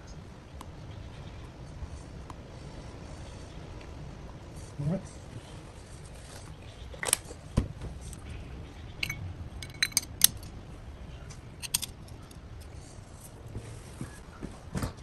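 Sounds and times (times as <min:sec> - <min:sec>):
metal parts clinking together: 0:09.0 - 0:10.5, 0:11.6 - 0:12.7.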